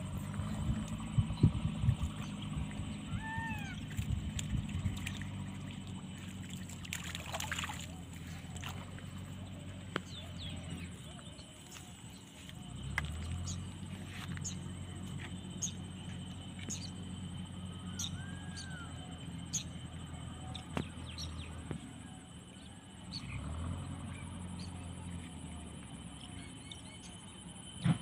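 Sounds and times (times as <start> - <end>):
low steady hum: 0.0 - 22.1
small birds chirping: 0.0 - 23.4.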